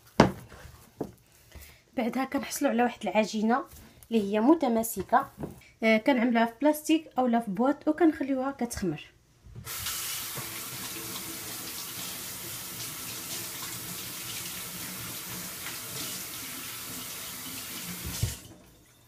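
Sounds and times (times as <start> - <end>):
tap water running into sink: 9.6 - 18.7.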